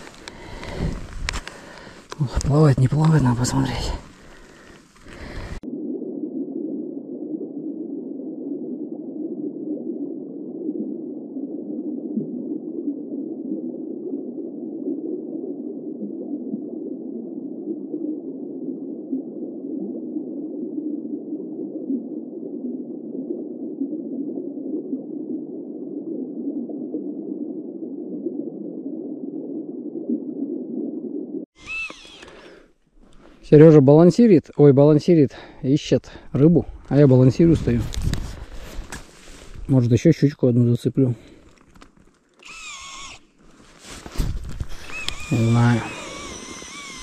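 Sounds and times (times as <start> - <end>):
muffled underwater rushing: 0.0 - 31.7, 43.3 - 47.0.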